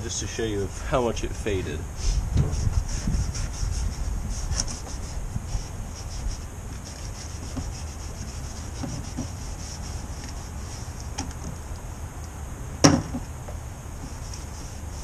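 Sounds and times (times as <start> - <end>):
steel wool scrubbing: 2.0 - 11.1.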